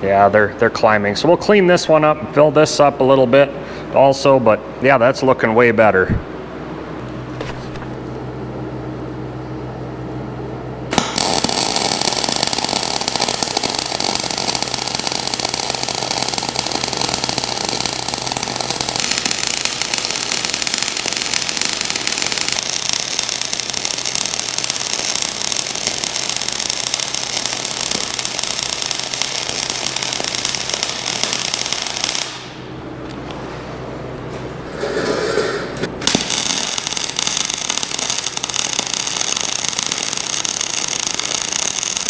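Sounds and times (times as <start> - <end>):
welding arc crackling: 10.9 - 32.8, 35.8 - 42.0.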